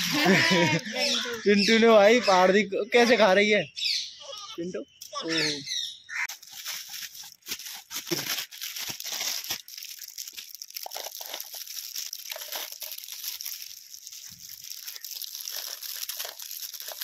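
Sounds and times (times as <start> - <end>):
plastic wrappers crinkling and tearing: 0.0 - 1.0, 6.2 - 17.0.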